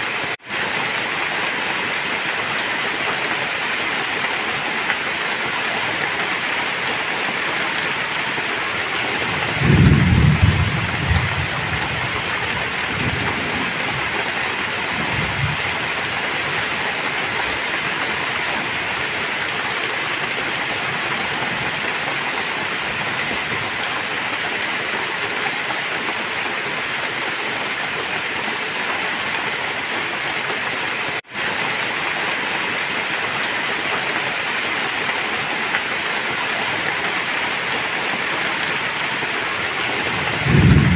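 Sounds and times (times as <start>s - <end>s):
heavy rain falling: 0.0s - 40.9s
thunder rumbling: 9.2s - 15.8s, 40.0s - 40.9s.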